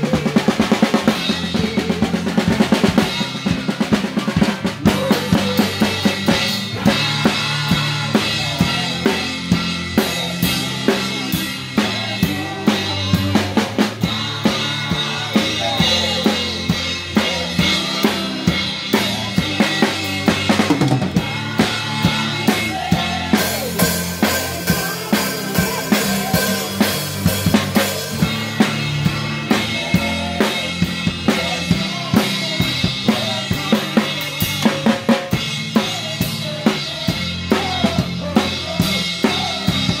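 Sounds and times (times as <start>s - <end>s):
drum kit beat: 0.0s - 40.0s
keyboard: 0.0s - 40.0s.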